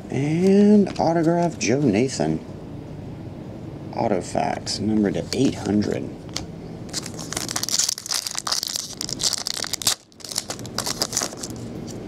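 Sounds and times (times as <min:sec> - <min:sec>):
foil wrapper crinkling: 0:06.9 - 0:12.0.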